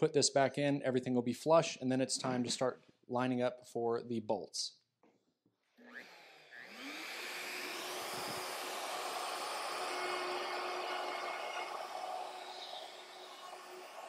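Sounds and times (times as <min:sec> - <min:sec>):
router spinning with rising whine: 0:05.8 - 0:14.0
dust extractor drawing through hose: 0:06.6 - 0:14.0.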